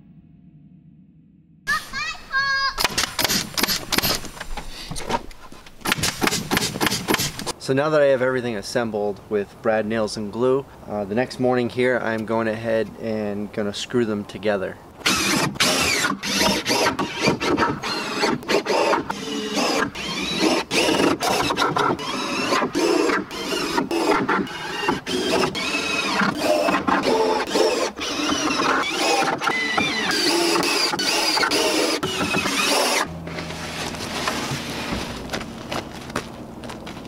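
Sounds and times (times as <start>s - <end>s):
cordless drill driving screws: 2.8s - 4.3s, 15.0s - 33.1s.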